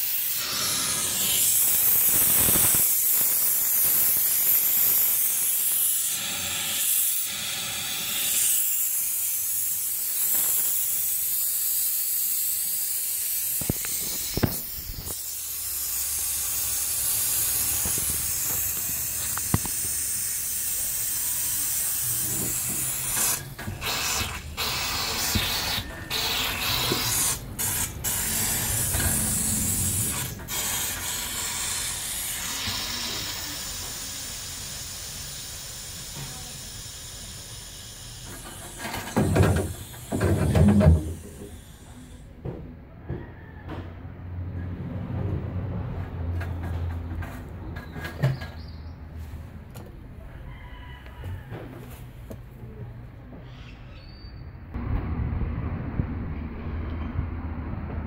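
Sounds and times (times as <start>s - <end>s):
compressed air hissing from drain: 0.0s - 42.4s.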